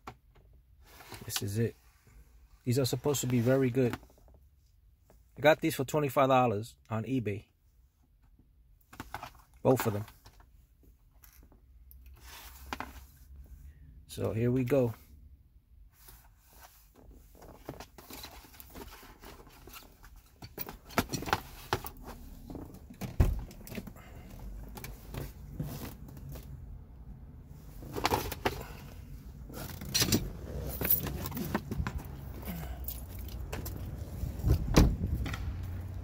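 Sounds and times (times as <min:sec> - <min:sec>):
dull thump: 0:34.4 - 0:35.4.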